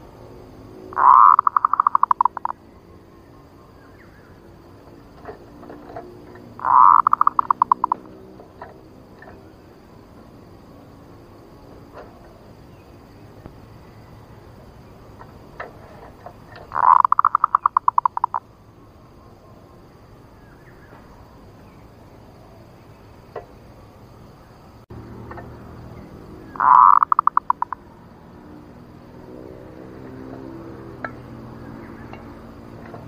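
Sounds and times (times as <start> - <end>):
dove calling: 0.8 - 9.8, 11.8 - 18.5, 25.8 - 28.0.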